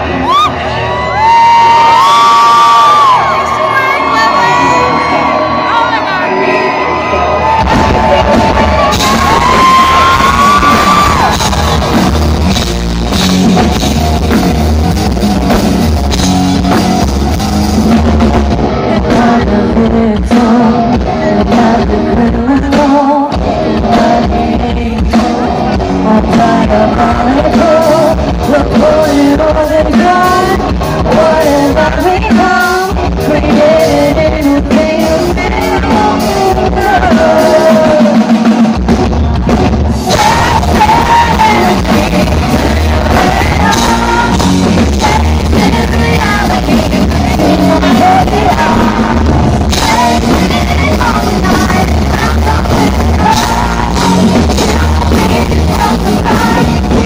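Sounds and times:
bass guitar: 0.0 - 57.0
drums: 0.0 - 57.0
rock band playing live: 0.0 - 57.0
woman singing lead: 7.4 - 12.7, 18.7 - 38.6, 40.0 - 57.0.

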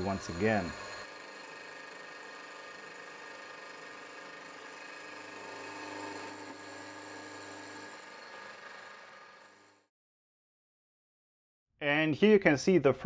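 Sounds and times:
milling machine cutting metal: 0.0 - 9.8.

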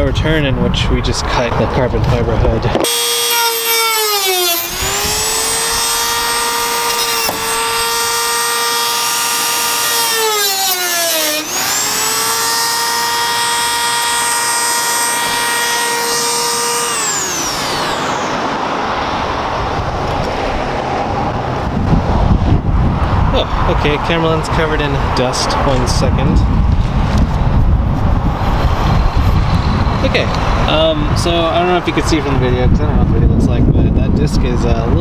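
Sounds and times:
traffic noise: 0.0 - 35.0
rotary tool cutting whine: 2.7 - 20.4, 28.4 - 30.7.

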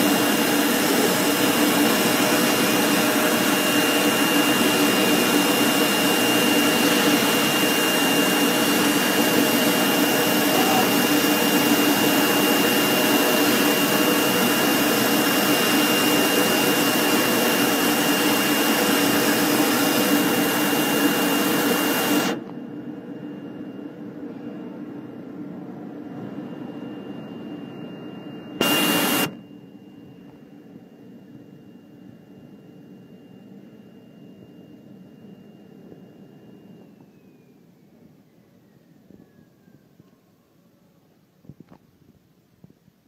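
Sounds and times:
cutting machine whirring hiss: 0.0 - 22.5, 28.6 - 29.4
thin high whine: 0.0 - 40.7.

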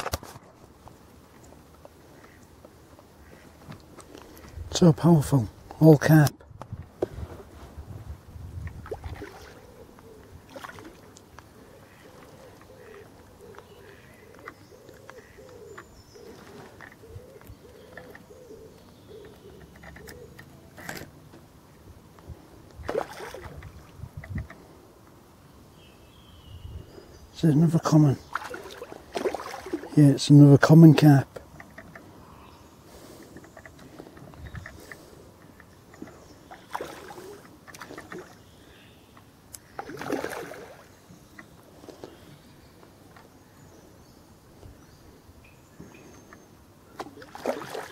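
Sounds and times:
fish splashing in water: 8.8 - 9.7, 10.4 - 11.3, 22.8 - 23.8, 28.3 - 30.0, 36.4 - 38.4, 39.7 - 40.9, 47.0 - 47.9
pigeon cooing: 9.3 - 11.0, 11.6 - 20.6, 36.1 - 38.1.

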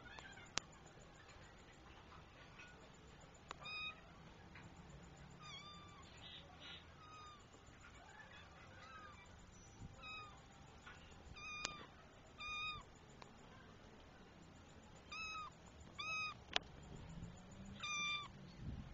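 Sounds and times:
kitten meowing: 3.6 - 4.0, 10.0 - 10.4, 11.4 - 12.9, 15.1 - 16.4, 17.8 - 18.3.

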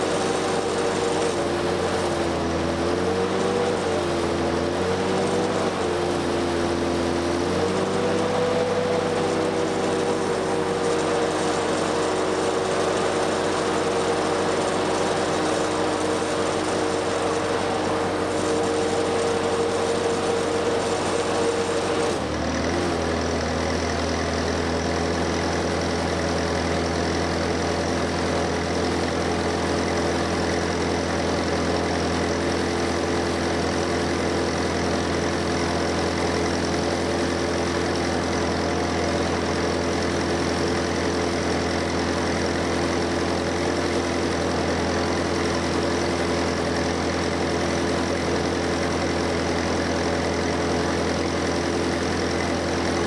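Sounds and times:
engine-driven welder running: 0.0 - 53.0
welding arc hissing: 9.4 - 23.1.

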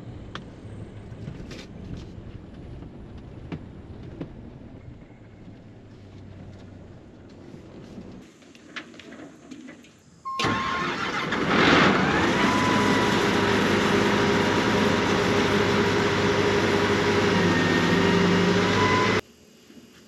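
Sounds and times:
engine starting and running: 10.3 - 19.2.

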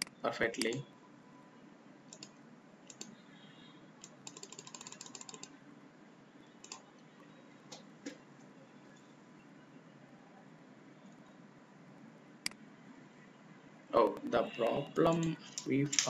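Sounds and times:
keyboard typing: 0.0 - 0.8, 2.1 - 3.2, 4.0 - 5.6, 6.6 - 7.0, 15.0 - 16.0
mouse clicks: 2.9 - 3.1.

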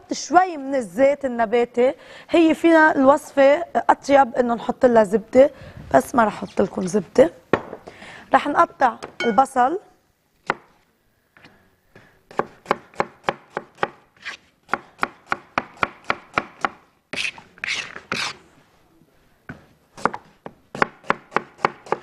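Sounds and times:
knife chopping onion on board: 12.3 - 14.0, 14.7 - 17.3, 20.0 - 22.0
knife scraping board: 17.1 - 18.4.

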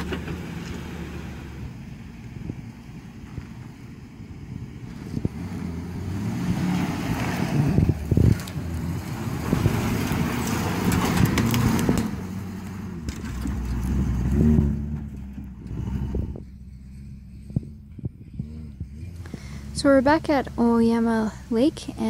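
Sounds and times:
pickup truck engine running: 0.0 - 22.0
twigs crackling under tyres: 6.6 - 15.9.

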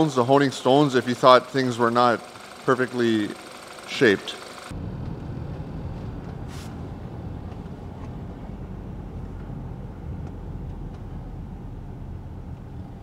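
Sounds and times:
engine and road noise in car: 4.6 - 13.0
short hiss: 6.5 - 6.8.

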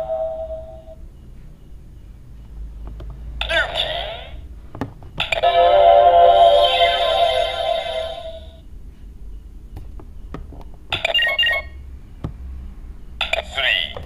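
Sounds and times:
toy chord of ringing tones: 0.0 - 1.0, 5.3 - 8.6.

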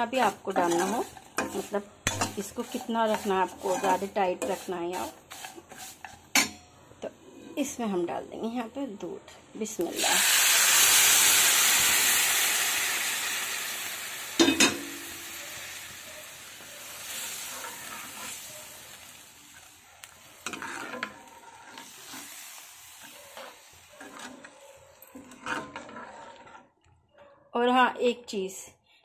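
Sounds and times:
milk sizzling in hot pan: 0.0 - 6.5, 9.7 - 26.4
stirring clinks and scrapes: 0.0 - 6.7, 17.4 - 27.3.

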